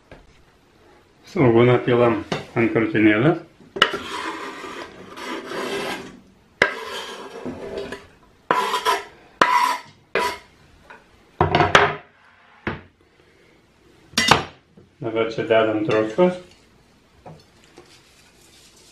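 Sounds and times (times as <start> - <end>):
knife scraping wooden board: 3.8 - 10.5.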